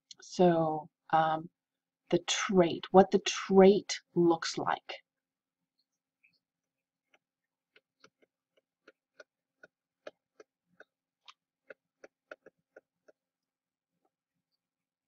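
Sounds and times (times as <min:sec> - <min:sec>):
stylus tapping pen tablet: 0:07.0 - 0:14.6.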